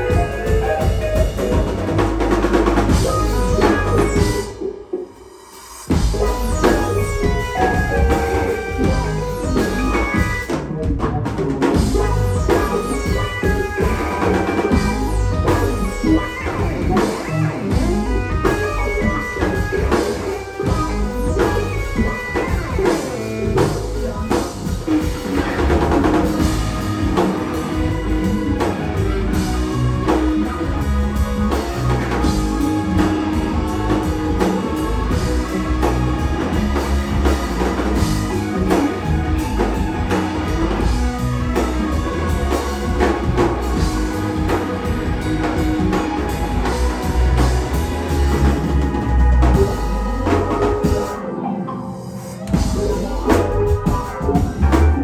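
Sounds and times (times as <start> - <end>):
bass guitar: 0.0 - 5.1, 5.8 - 55.0
drum kit: 0.0 - 55.0
electric guitar: 0.0 - 55.0
keyboards: 0.0 - 55.0.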